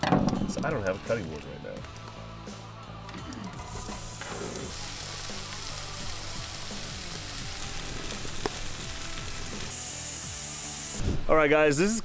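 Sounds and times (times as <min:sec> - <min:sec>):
food sizzling in a frying pan: 0:03.5 - 0:11.1.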